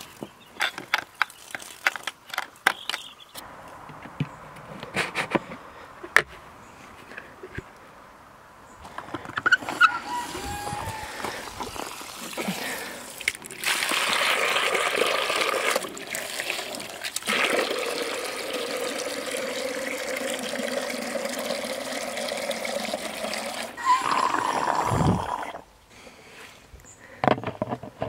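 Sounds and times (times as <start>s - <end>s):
hose water pouring into plastic bucket: 10.0s - 25.6s.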